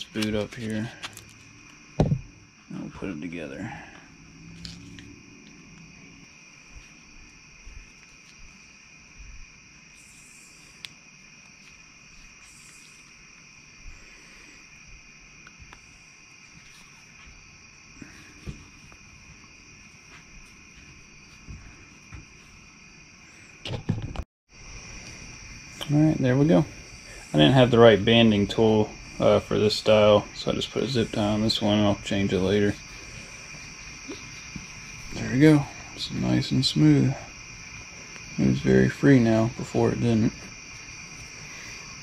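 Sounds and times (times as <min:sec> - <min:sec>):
insects chirring: 0:00.0 - 0:42.0.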